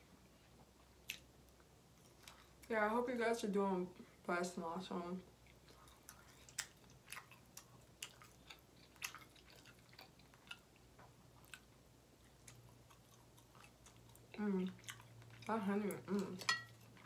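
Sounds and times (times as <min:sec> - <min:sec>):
faint low hum: 0:00.0 - 0:17.0
wet chewing mouth clicks: 0:05.5 - 0:15.5.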